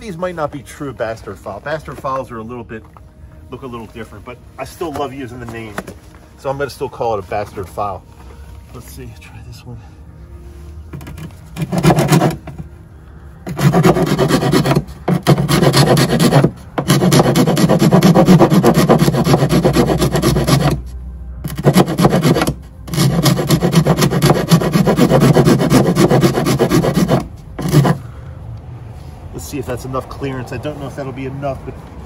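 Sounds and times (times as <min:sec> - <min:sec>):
hand file rasping on metal: 0:11.0 - 0:12.6, 0:13.4 - 0:28.0.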